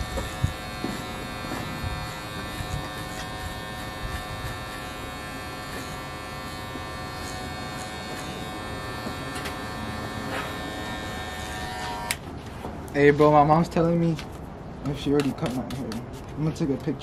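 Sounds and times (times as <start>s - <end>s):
hair clipper buzzing: 0.0s - 12.2s.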